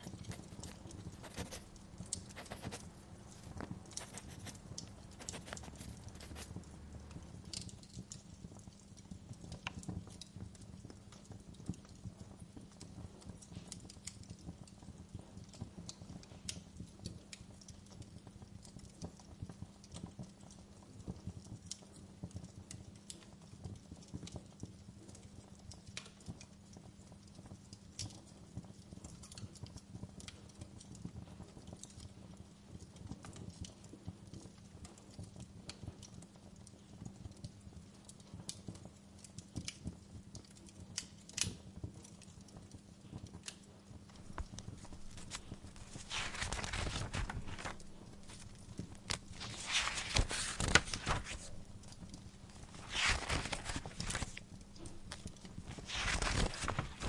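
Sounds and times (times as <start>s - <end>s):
fireplace crackling: 0.0s - 8.0s, 40.6s - 57.0s.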